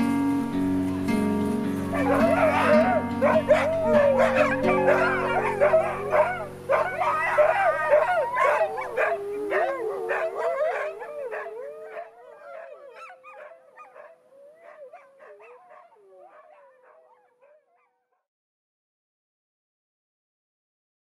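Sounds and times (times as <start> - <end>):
wolfdogs howling: 1.8 - 17.9.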